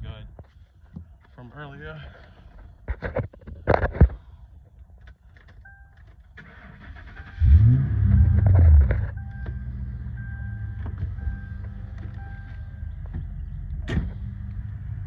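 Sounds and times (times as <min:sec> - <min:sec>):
car engine idling: 0:06.5 - 0:15.0.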